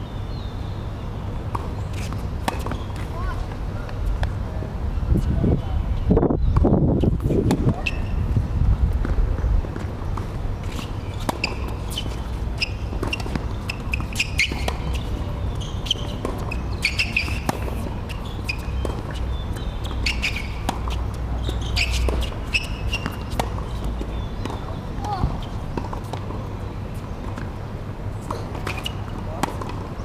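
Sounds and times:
racket hitting tennis ball: 1.5 - 3.5, 9.0 - 26.4, 28.2 - 30.0.

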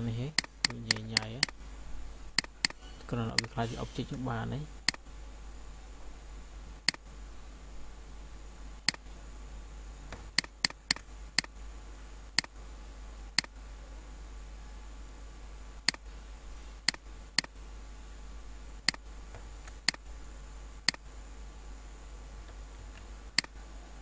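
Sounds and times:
low electrical hum: 0.0 - 24.0
computer mouse button clicking: 0.4 - 1.6.

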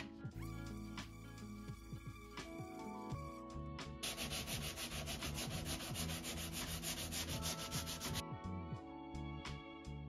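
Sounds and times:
scraper rasping on wood: 4.0 - 8.2.

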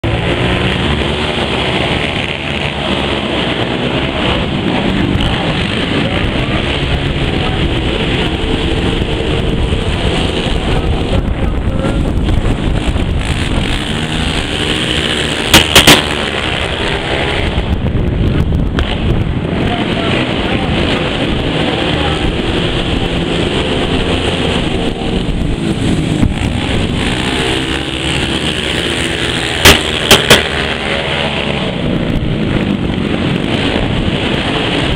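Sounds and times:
quad engines revving: 0.0 - 34.9
sharp loud pops: 15.4 - 16.3, 29.6 - 30.7.

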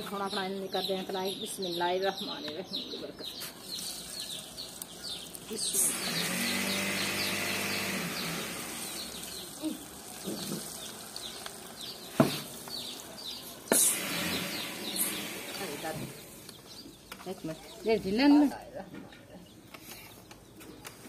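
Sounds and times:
small birds chirping: 0.0 - 21.0
food sizzling in hot oil: 3.6 - 16.6.

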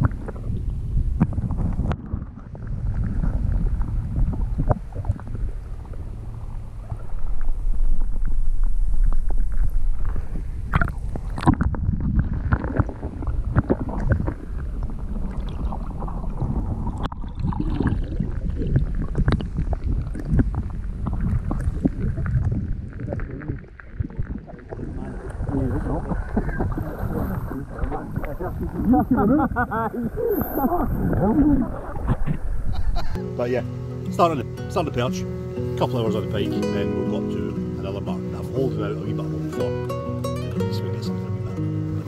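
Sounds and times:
wind rumbling on microphone: 0.0 - 33.2.

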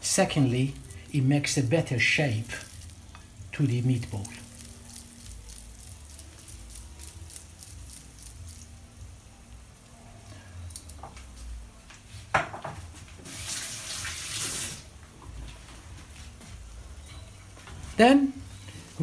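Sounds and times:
wet clicks of rolling meatballs: 0.3 - 11.4
running water: 13.2 - 14.9.

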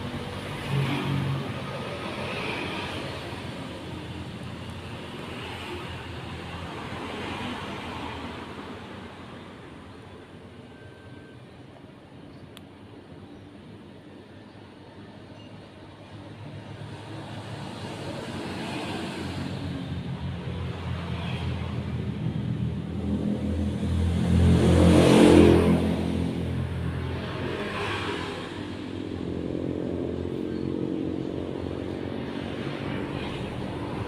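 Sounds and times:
motor vehicle engine passing: 23.0 - 34.0.

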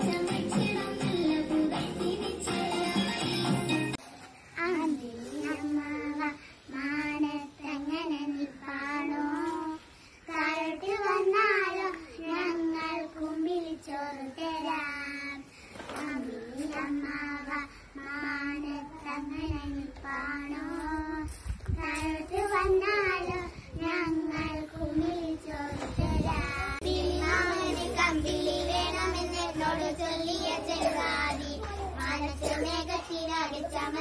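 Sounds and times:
girls singing together: 0.0 - 3.9, 4.6 - 34.0.

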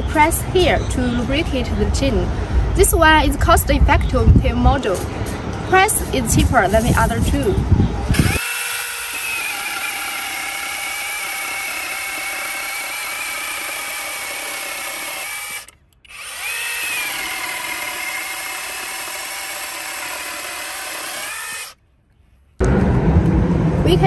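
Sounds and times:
electric chainsaw cutting wood: 8.1 - 21.8.

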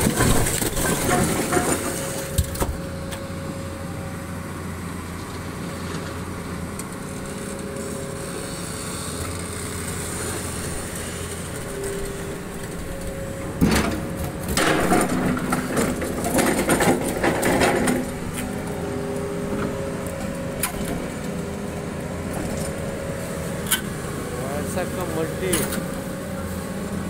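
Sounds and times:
steel bucket scraping stone: 0.0 - 2.4, 14.6 - 18.1
excavator diesel engine running: 0.0 - 27.0.

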